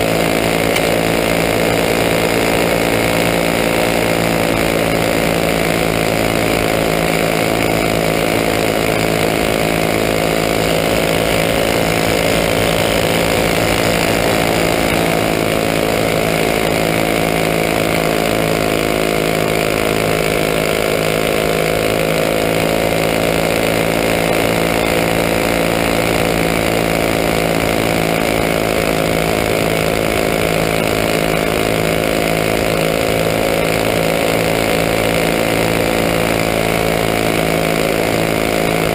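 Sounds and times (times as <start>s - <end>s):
kart engine running at full speed: 0.0s - 38.9s.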